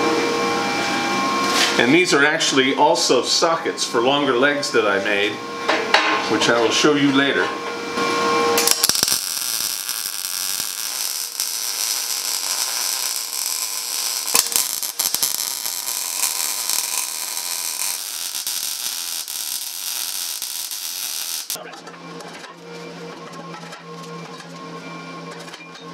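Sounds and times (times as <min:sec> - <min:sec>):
welder arc crackling hiss: 0:08.6 - 0:21.6.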